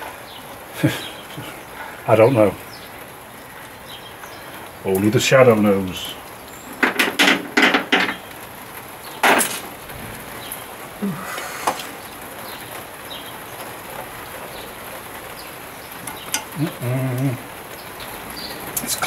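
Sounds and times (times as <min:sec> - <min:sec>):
hand tools clattering: 0:06.7 - 0:08.2, 0:09.2 - 0:09.7, 0:16.0 - 0:16.6.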